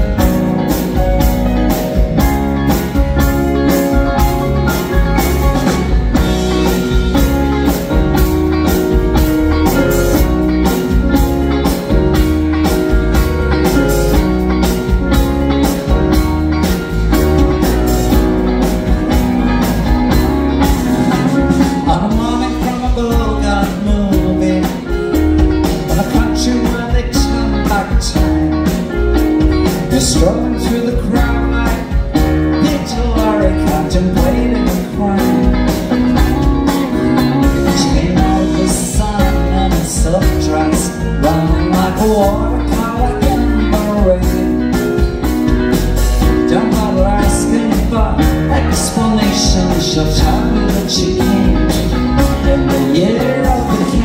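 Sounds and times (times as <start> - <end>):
live soft-rock band playing: 0.0 - 54.0
man singing: 21.1 - 29.0, 29.6 - 45.1, 46.2 - 54.0.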